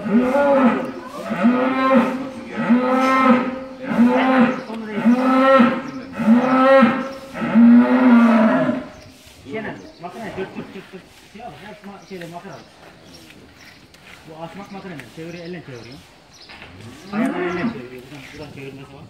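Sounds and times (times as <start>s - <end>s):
cattle mooing: 0.0s - 8.9s, 16.8s - 17.8s.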